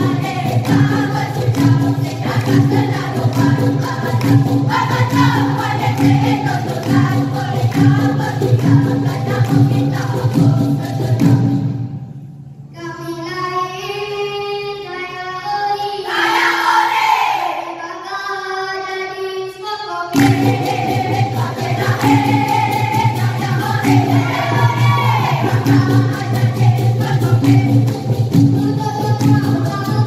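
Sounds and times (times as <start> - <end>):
children's chorus singing: 0.0 - 11.5, 15.4 - 18.8, 19.5 - 30.0
percussion: 0.0 - 17.8, 19.4 - 30.0
boy singing into a microphone: 12.7 - 16.7, 17.6 - 20.2, 28.6 - 30.0.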